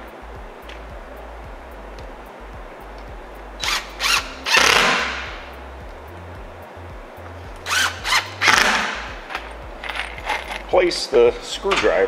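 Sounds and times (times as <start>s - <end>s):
impact driver driving screws: 7.7s - 9.0s.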